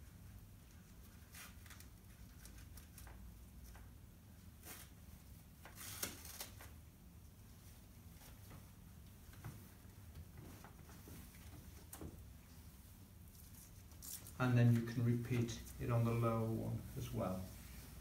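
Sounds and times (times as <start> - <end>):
low steady hum: 6.6 - 18.0
faint rustling: 7.5 - 18.0.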